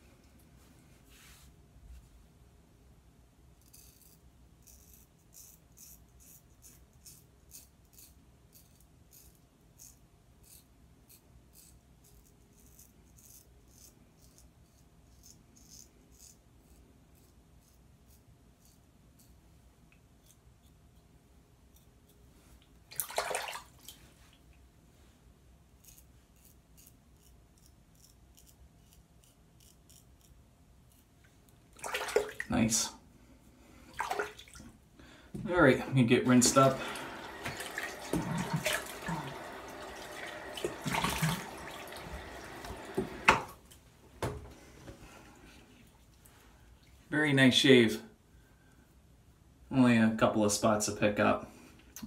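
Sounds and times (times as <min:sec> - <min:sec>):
razor scraping stubble: 0:03.6 - 0:19.4, 0:25.8 - 0:31.1.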